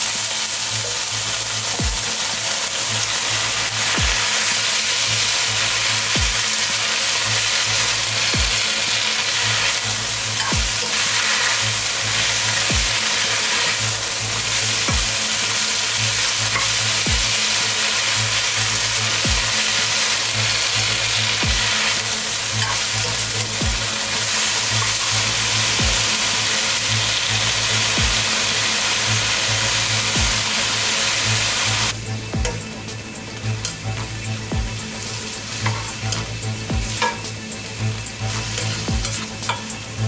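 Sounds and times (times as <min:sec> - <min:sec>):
food sizzling in a wok: 0:00.0 - 0:40.0
electronic music with deep beat: 0:00.8 - 0:02.2, 0:03.5 - 0:04.3, 0:05.2 - 0:06.5, 0:07.4 - 0:08.7, 0:09.8 - 0:10.9, 0:11.6 - 0:13.0, 0:13.8 - 0:15.3, 0:16.0 - 0:17.5, 0:18.2 - 0:19.7, 0:20.4 - 0:24.1, 0:24.8 - 0:26.3, 0:26.9 - 0:28.4, 0:29.1 - 0:30.6, 0:31.3 - 0:40.0.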